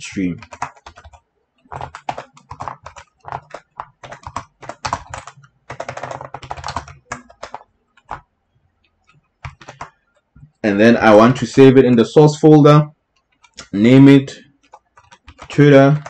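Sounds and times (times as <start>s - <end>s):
typing on computer keyboard: 0.4s - 10.7s, 13.2s - 13.8s, 14.5s - 16.0s.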